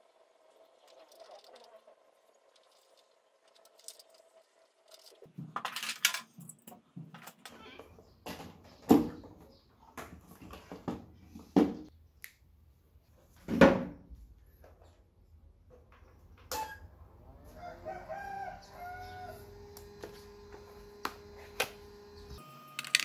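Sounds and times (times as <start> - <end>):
plastic toy truck rustling and clicks: 22.8 - 23.0.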